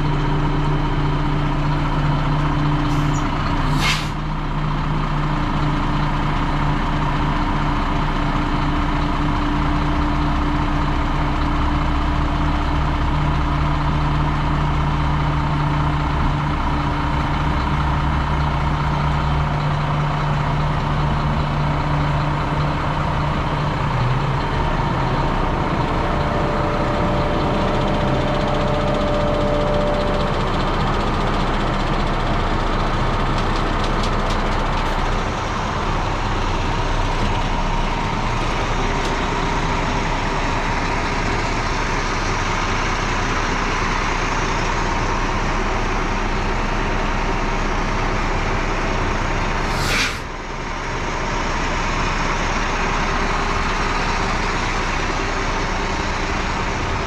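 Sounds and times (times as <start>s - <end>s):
diesel truck engine running: 0.0s - 57.0s
brief sharp sound: 49.6s - 50.3s.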